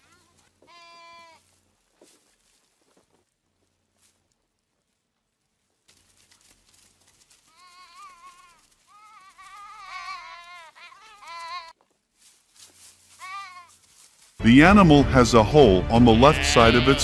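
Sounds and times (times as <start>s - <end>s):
rustling scuffle: 0.0s - 14.4s
high quavering animal calls: 7.5s - 11.7s, 13.1s - 13.8s.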